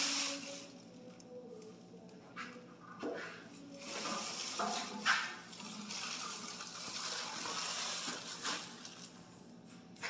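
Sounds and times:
plastic wrapping rustling: 3.5 - 9.4.

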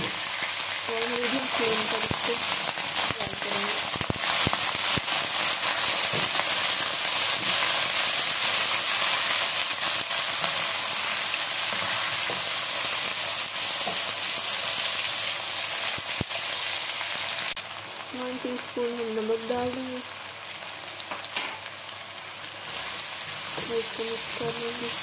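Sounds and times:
food sizzling in a wok: 0.0 - 25.0.

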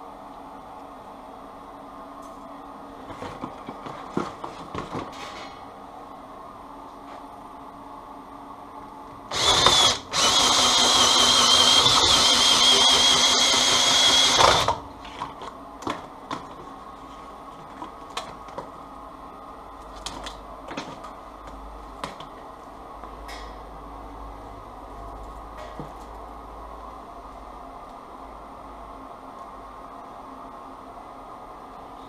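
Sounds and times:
cordless drill whine: 9.3 - 14.8.

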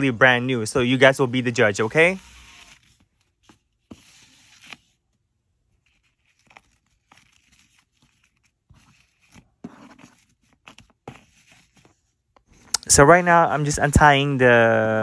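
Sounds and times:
fingers rustling ribbon: 5.7 - 12.1.

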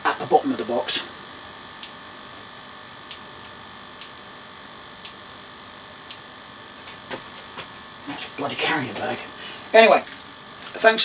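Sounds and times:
electrical hum and hiss: 0.0 - 11.0.

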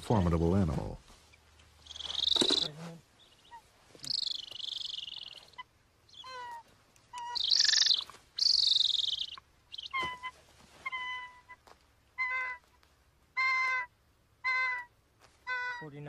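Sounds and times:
eagle screeching: 1.8 - 11.6, 13.4 - 16.0
eagle yelping: 1.8 - 16.0.

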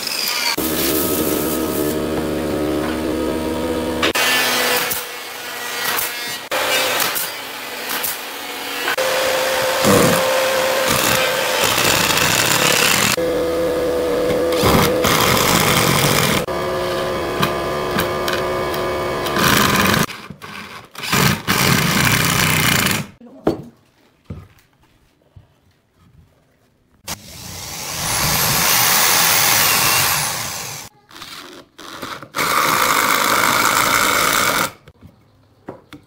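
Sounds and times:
cordless drill whining: 8.9 - 13.3, 27.2 - 30.9.

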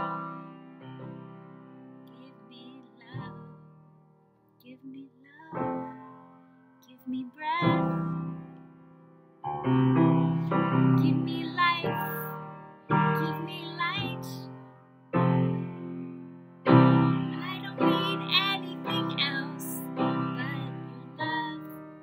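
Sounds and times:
woman singing: 2.1 - 3.6, 4.6 - 6.2, 6.8 - 8.2, 11.0 - 12.4, 13.0 - 14.6, 17.3 - 22.0.

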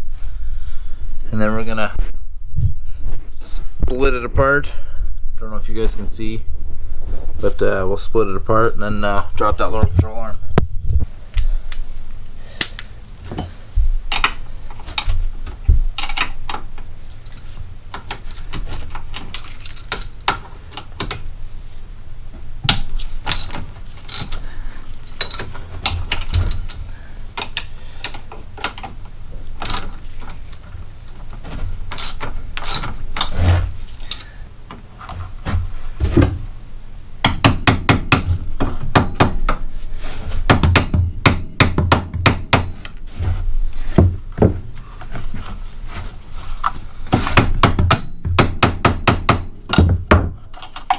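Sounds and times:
metallic tool clicks and knocks: 13.3 - 14.4
ratchet wrench clicking: 23.3 - 24.4, 25.2 - 25.5, 32.0 - 32.9.

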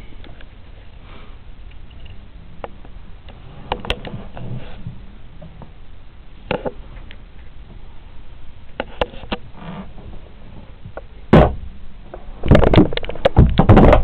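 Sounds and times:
clattering wooden knocks: 12.5 - 14.0.

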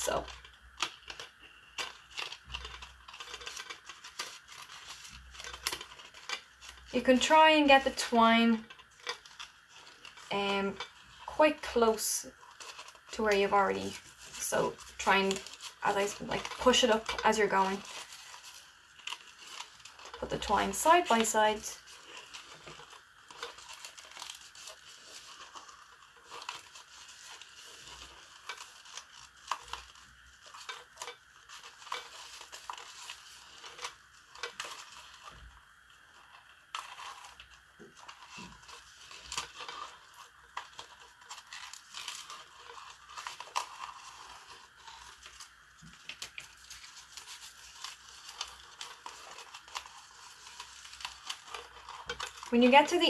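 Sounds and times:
pot clicks and scrapes: 0.0 - 53.0
twine rustling and scraping: 0.0 - 53.0.

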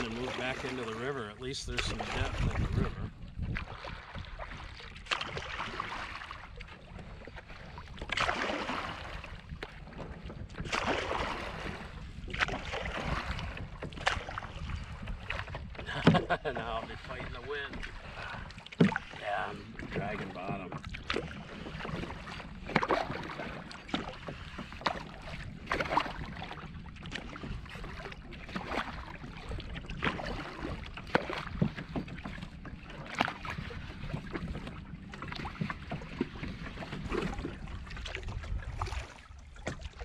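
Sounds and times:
kayak paddle splashing: 0.0 - 40.0
wind rumble on microphone: 1.3 - 40.0.

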